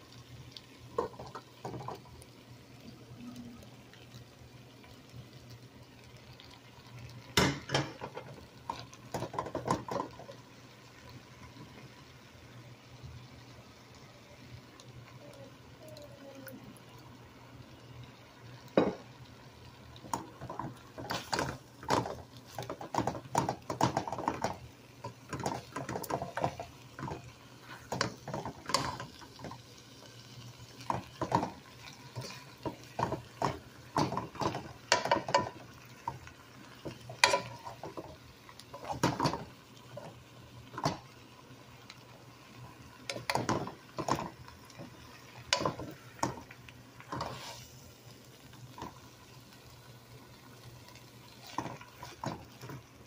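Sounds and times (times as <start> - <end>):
wooden spoon scraping frying pan: 20.2 - 29.5, 30.8 - 36.2, 36.8 - 40.2, 43.1 - 47.8, 51.3 - 52.8.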